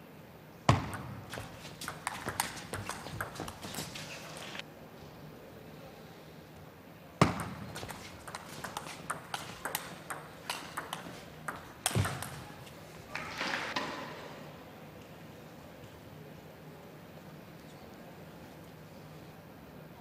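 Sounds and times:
table tennis ball clicking: 0:00.8 - 0:04.1, 0:07.3 - 0:12.6.

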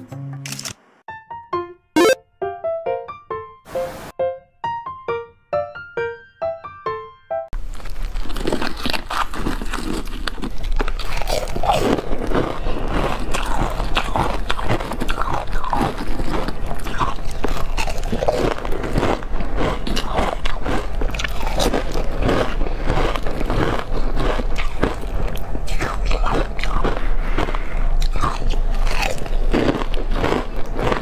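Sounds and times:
ice being crunched by teeth: 0:07.6 - 0:31.0.

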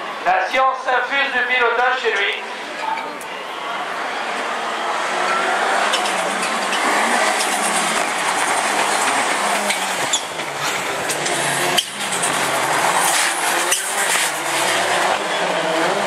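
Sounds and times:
race car engine revving: 0:03.5 - 0:16.0.

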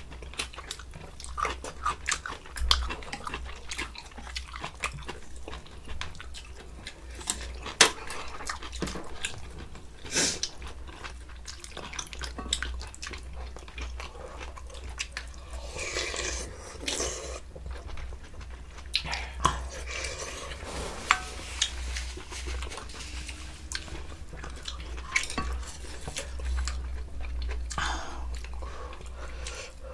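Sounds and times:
chewing: 0:00.0 - 0:29.9
steady low hum: 0:06.6 - 0:29.9.

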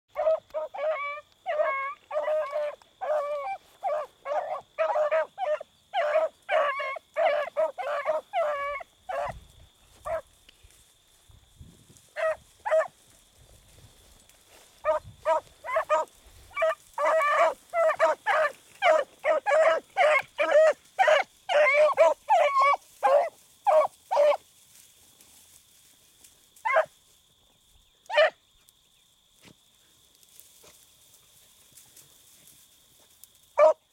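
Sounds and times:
dogs baying: 0:00.1 - 0:09.4, 0:10.0 - 0:10.2, 0:12.2 - 0:13.0, 0:14.8 - 0:24.4, 0:33.6 - 0:33.8.

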